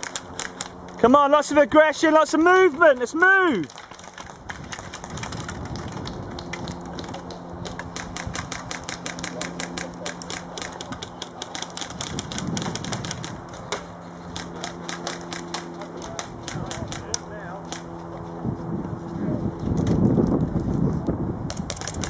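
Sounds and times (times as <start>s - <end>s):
airsoft guns firing: 0.0s - 0.9s, 3.6s - 17.9s.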